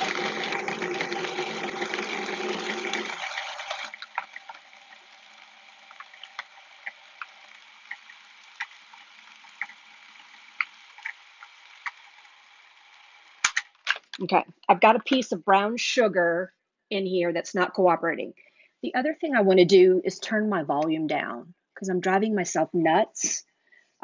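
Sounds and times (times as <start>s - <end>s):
food processor running: 0.0s - 13.6s.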